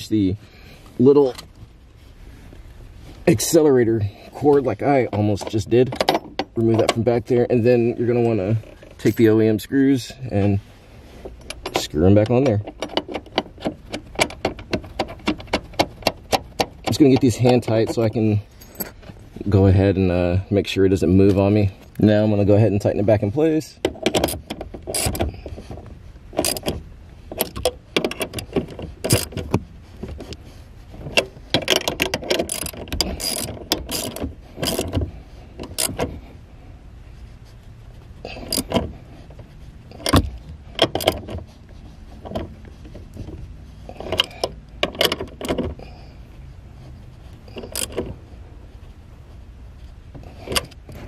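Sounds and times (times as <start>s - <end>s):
ratchet wrench clicking: 31.6s - 35.0s, 38.4s - 38.8s, 47.6s - 48.0s.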